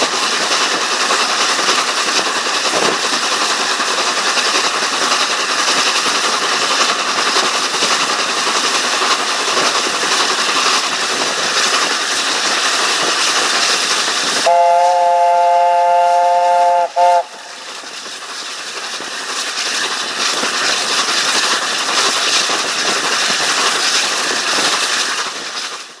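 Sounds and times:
train wheel and rail noise: 0.0 - 26.0
locomotive chime whistle: 14.4 - 17.3.

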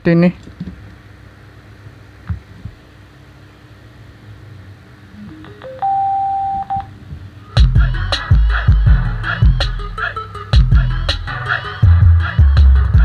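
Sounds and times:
electronic prompt beeps: 5.2 - 6.9
music with heavy bass: 7.6 - 13.0.

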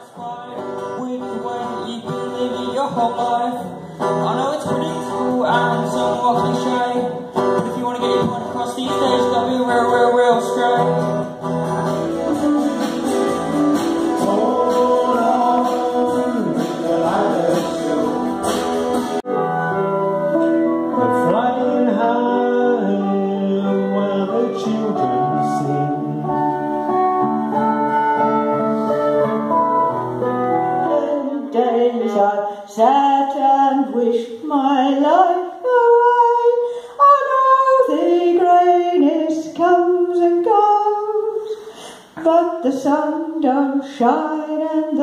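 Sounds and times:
guitars playing a song: 0.0 - 32.6
woman singing unaccompanied: 30.8 - 41.4.

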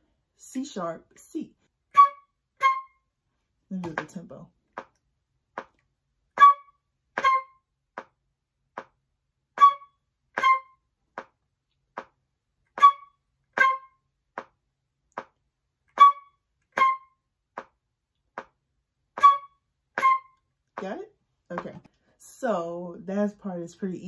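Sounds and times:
flute staccato notes: 1.9 - 3.0, 6.4 - 7.7, 9.6 - 10.8, 12.8 - 14.0, 16.0 - 17.2, 19.2 - 20.4
metronome ticking: 6.4 - 8.1, 9.6 - 11.3, 12.8 - 14.0, 15.9 - 17.7, 19.2 - 21.0.

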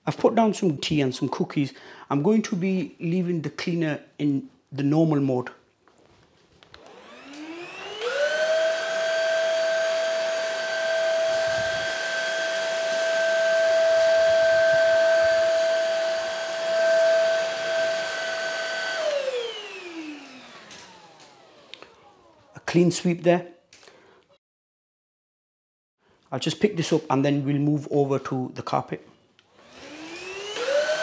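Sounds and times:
cordless vacuum motor whining: 6.7 - 22.5, 29.5 - 31.0.

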